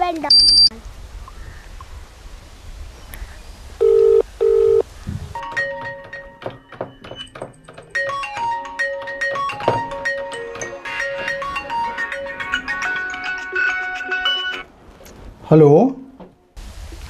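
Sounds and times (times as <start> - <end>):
mobile phone ringtone melody: 3.8 - 4.8
telephone ringback tone: 3.8 - 4.8.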